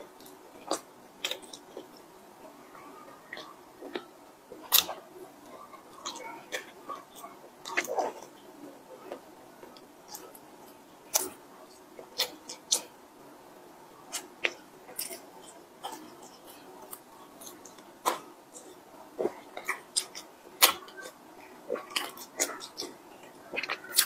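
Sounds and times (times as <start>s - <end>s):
chewing: 0.0s - 12.9s, 14.0s - 24.0s.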